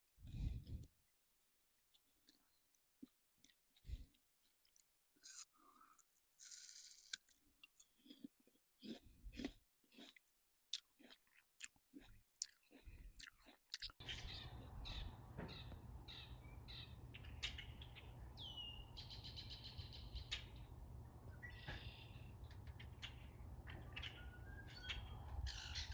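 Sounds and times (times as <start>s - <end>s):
chewing soft bread: 0.2s - 14.8s
songbirds chirping: 12.7s - 25.9s.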